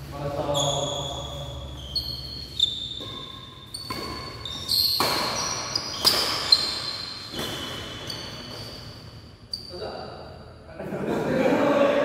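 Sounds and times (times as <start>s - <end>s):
shoe squeaks: 0.2s - 10.6s
racket hitting shuttlecock: 2.2s - 8.7s.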